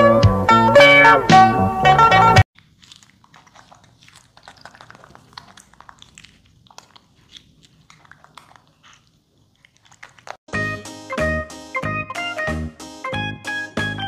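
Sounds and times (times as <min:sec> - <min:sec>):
monkey chewing melon clicks: 0:02.5 - 0:10.5.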